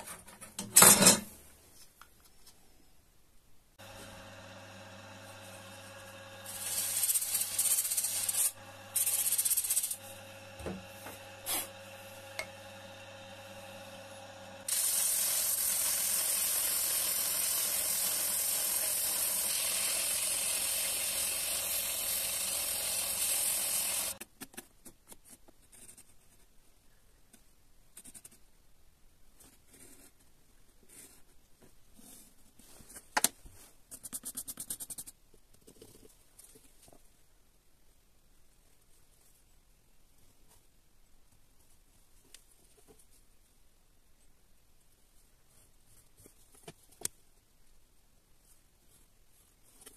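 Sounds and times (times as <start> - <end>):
sanding disc humming: 3.8 - 24.2
wood sanding against disc: 5.2 - 12.5, 14.7 - 24.2.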